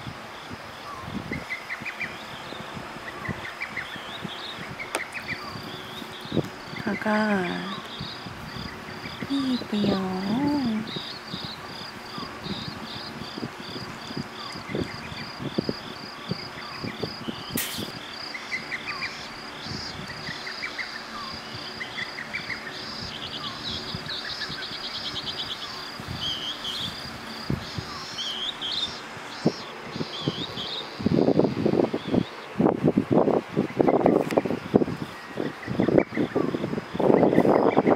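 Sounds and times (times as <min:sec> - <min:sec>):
electric fan hiss: 0:00.0 - 0:37.9
night insects chirping: 0:00.0 - 0:37.9
sharp click: 0:17.6 - 0:17.9.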